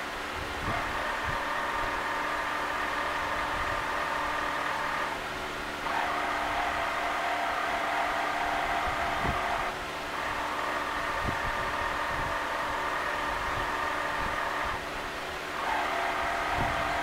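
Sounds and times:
motorised carriage whining: 0.0s - 17.0s.

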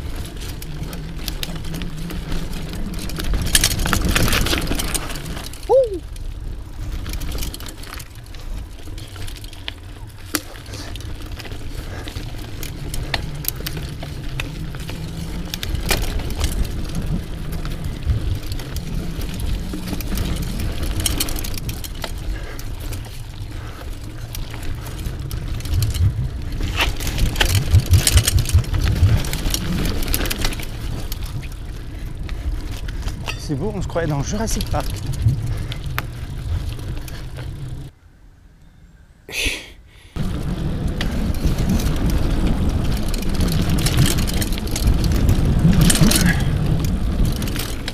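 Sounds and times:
bike rattling over bumps: 0.0s - 38.0s, 40.2s - 47.9s
bike tyres rumbling on trail: 0.0s - 38.0s, 40.2s - 47.9s
wind on camera: 23.0s - 37.9s.

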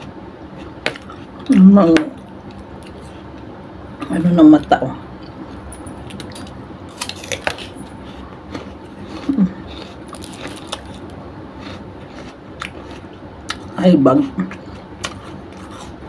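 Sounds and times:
chewing with mouth clicks: 6.0s - 13.8s.

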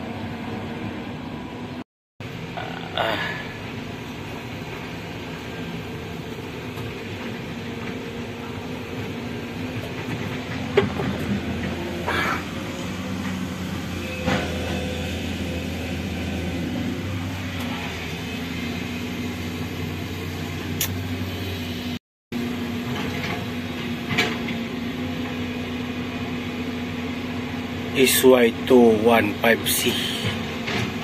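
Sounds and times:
excavator diesel engine running: 0.0s - 31.0s.

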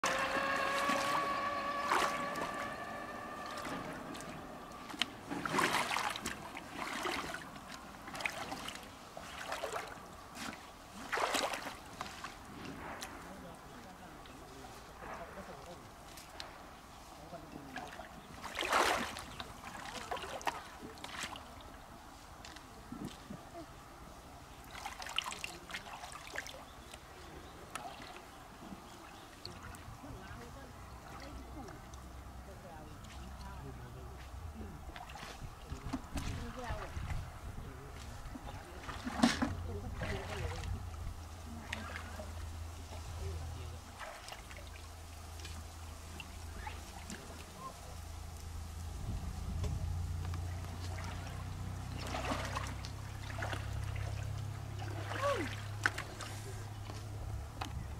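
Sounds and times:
steady pitched tone: 0.0s - 5.3s
wading through shallow water: 0.0s - 57.9s
small splashes and drips: 0.1s - 13.2s, 17.7s - 23.6s, 24.5s - 32.3s, 34.2s - 48.9s, 49.5s - 57.8s.

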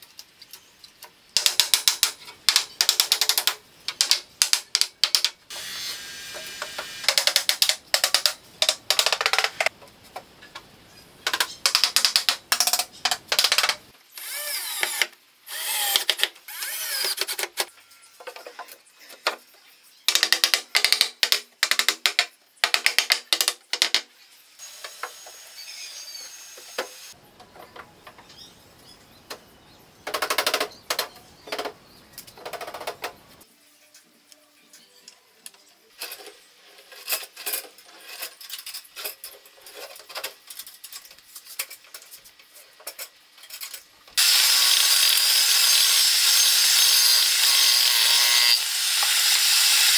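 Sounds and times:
small power tool bursts: 5.5s - 7.2s, 14.1s - 17.2s, 44.2s - 49.9s.

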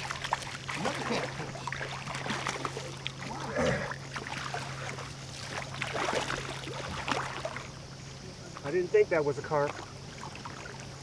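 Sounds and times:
fish splashing in water: 0.0s - 8.0s.

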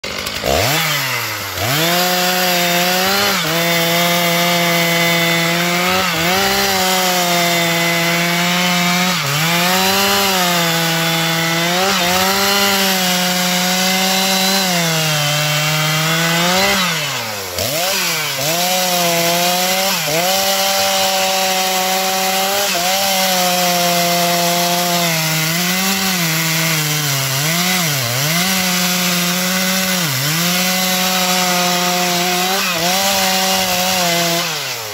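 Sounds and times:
chainsaw cutting tree trunk: 0.0s - 34.9s.

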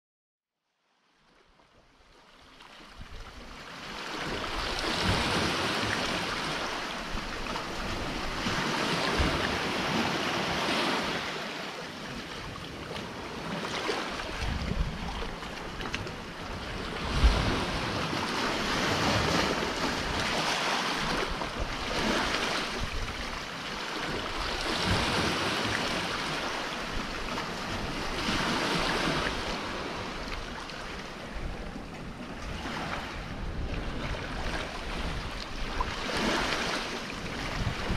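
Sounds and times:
sea surf breaking around rocks: 3.4s - 37.9s
wind buffeting microphone: 12.5s - 37.9s.

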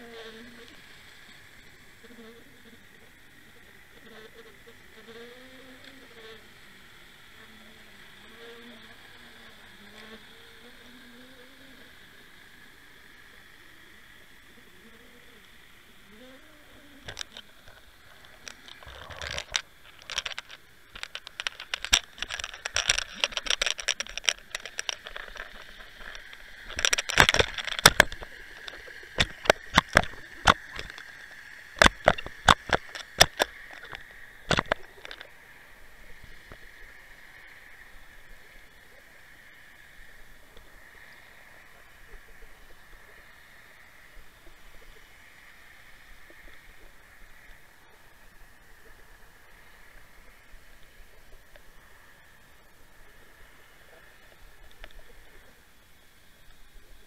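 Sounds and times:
underwater clicks and rattling taps: 17.0s - 35.3s.

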